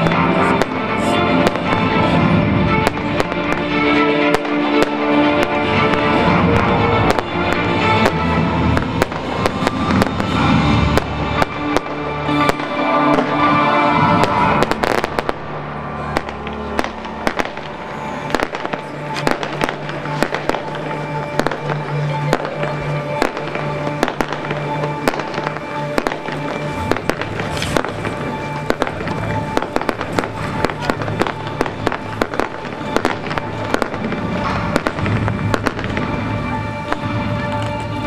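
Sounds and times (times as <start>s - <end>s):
fireworks bangs and crackles: 0.0s - 38.0s
music playing: 0.0s - 38.0s.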